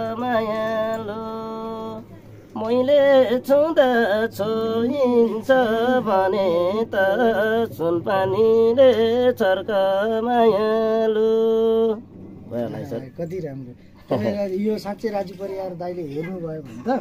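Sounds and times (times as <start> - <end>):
man singing unaccompanied: 0.0 - 13.1.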